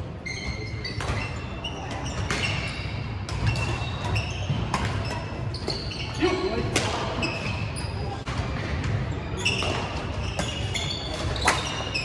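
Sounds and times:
sports hall hum: 0.0s - 12.0s
sneaker squeaks on hardwood: 0.2s - 6.3s, 9.2s - 12.0s.

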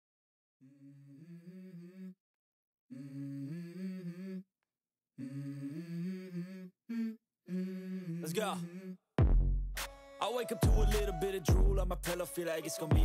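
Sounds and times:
person humming a tune: 2.9s - 4.5s, 5.2s - 9.0s.

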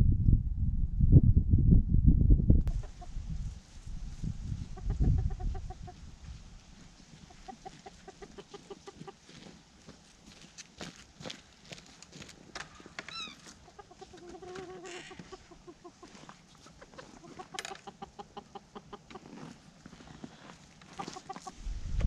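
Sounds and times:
chicken squawk: 2.7s - 3.2s, 4.7s - 6.0s, 7.3s - 9.2s, 13.0s - 19.4s, 20.9s - 21.6s
chickens clucking: 2.7s - 3.3s, 4.5s - 6.1s, 7.0s - 9.6s, 12.6s - 21.6s.

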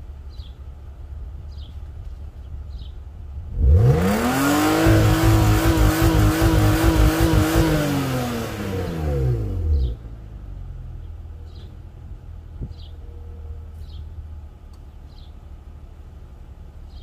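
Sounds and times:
car engine revving: 3.4s - 10.8s.

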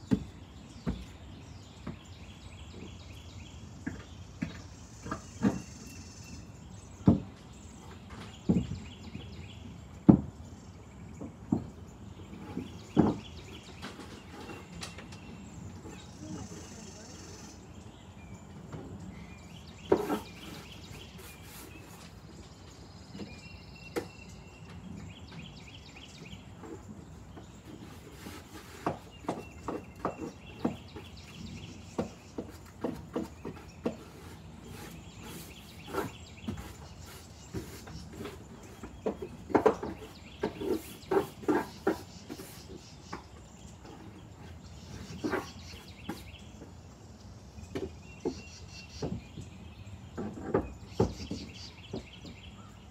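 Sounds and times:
knocks on wooden stairs: 0.0s - 1.2s, 27.4s - 43.2s.

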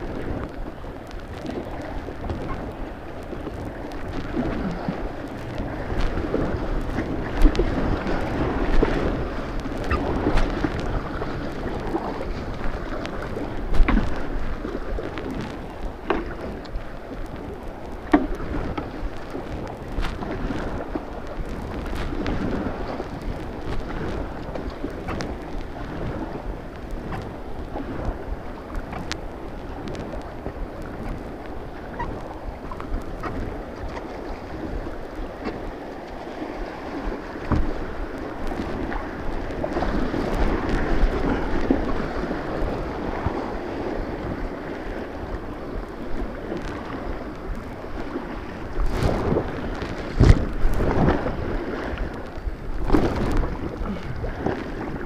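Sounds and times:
paddle splashes: 0.0s - 55.0s
river water rushing: 1.5s - 15.2s.

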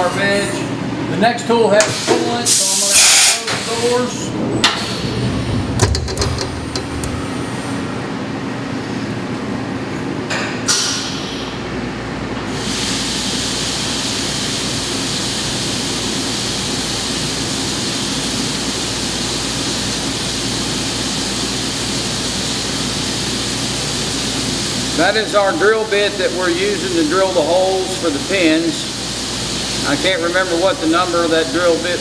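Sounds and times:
coolant hissing and splashing: 1.9s - 4.2s, 12.5s - 32.0s
milling machine hum: 4.3s - 9.8s
machine clunk: 5.5s - 8.0s.

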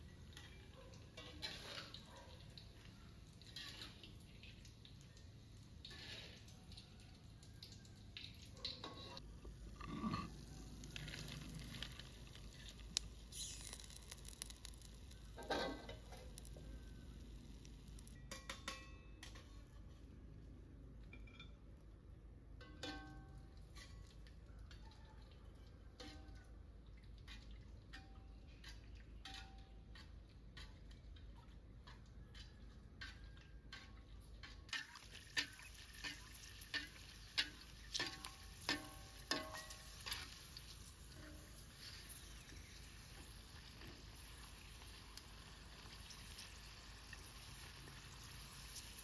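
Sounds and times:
oil sizzling: 0.0s - 19.7s, 31.9s - 49.0s
metal spatula scraping in wok: 1.2s - 2.0s, 5.8s - 6.5s, 9.8s - 17.2s, 32.4s - 43.9s.

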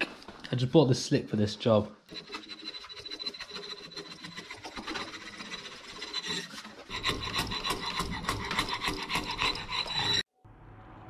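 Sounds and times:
blade scraping wood: 2.1s - 10.3s.

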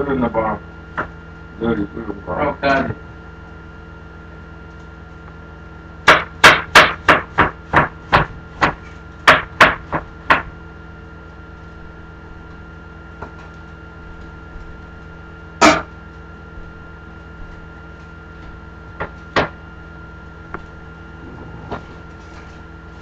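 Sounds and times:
heavy chopping on cutting board: 6.1s - 10.4s.

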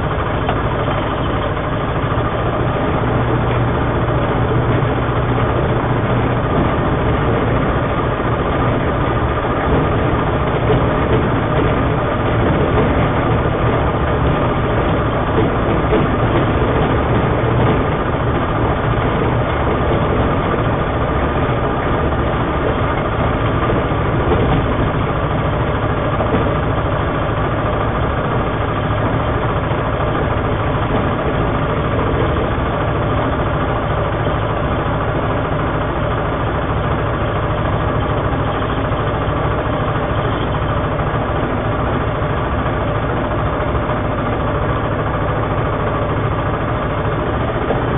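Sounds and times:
light aircraft engine and propeller: 0.0s - 47.9s.

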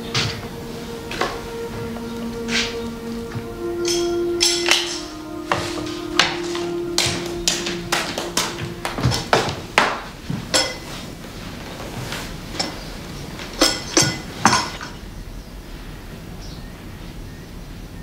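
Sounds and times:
china cups and saucers clinking: 3.8s - 11.0s, 12.5s - 12.8s, 13.5s - 15.0s.

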